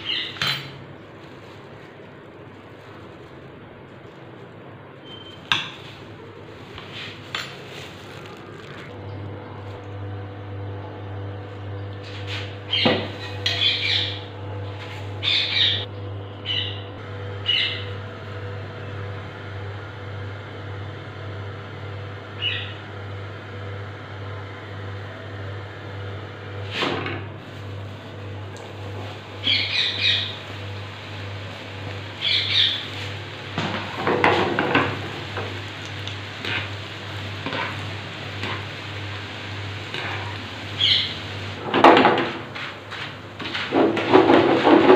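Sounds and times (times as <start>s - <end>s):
birds chirping: 0.0s - 0.7s, 12.7s - 14.3s, 15.2s - 17.8s, 29.4s - 30.4s, 32.1s - 33.2s, 40.8s - 41.2s
steady low hum: 0.0s - 44.9s.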